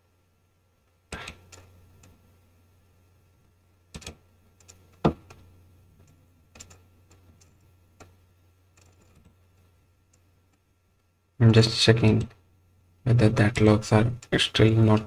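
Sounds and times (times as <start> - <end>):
low steady hum: 0.0 - 15.0
computer mouse clicking: 1.1 - 2.2, 3.9 - 10.3.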